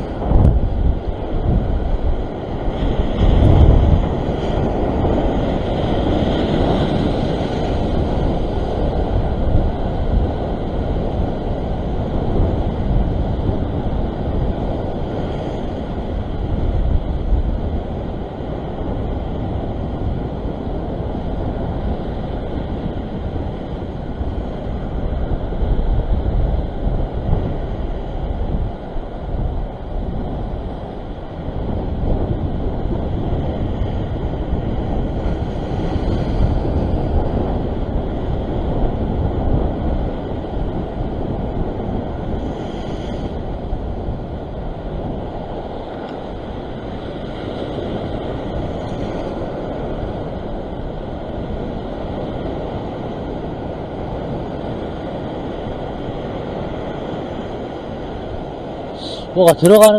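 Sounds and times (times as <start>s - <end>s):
ocean waves breaking on rocks: 0.0s - 59.9s
wind buffeting microphone: 0.0s - 59.9s.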